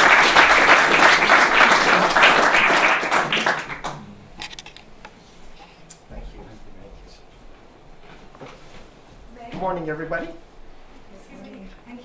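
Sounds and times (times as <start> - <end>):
audience applauding: 0.0 - 4.0.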